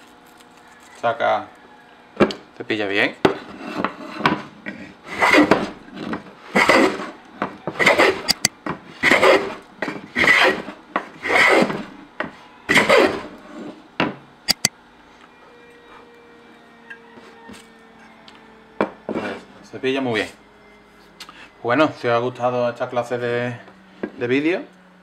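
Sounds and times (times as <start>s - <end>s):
hand plane shaving wood: 6.5s - 7.1s, 7.7s - 8.4s, 9.0s - 9.6s
sharp clicks: 8.3s - 8.5s, 14.5s - 14.7s.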